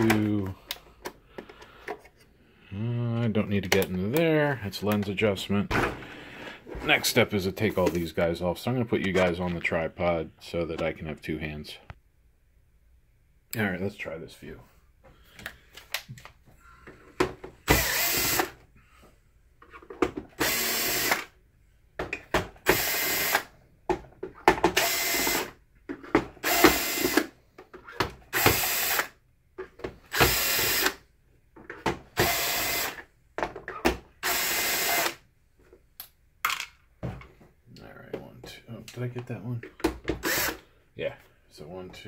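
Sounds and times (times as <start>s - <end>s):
cordless drill spinning screws: 17.7s - 18.6s, 20.4s - 21.3s, 22.6s - 23.5s, 24.8s - 25.5s, 26.4s - 27.3s, 28.3s - 29.1s, 30.1s - 31.0s, 32.2s - 33.0s, 34.2s - 35.2s, 40.2s - 40.6s.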